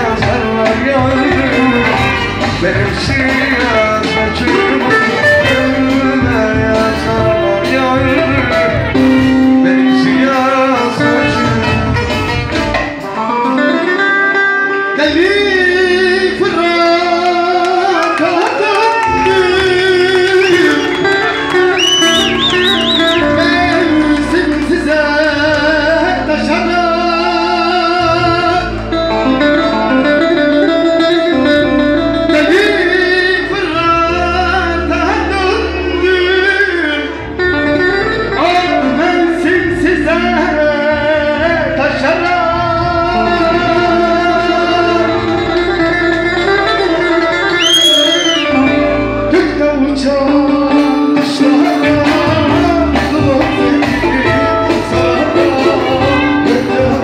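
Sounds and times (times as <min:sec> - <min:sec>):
plucked strings accompaniment: 0:00.0 - 0:17.9, 0:19.0 - 0:47.6, 0:48.5 - 0:57.0
man singing into a microphone: 0:00.0 - 0:57.0.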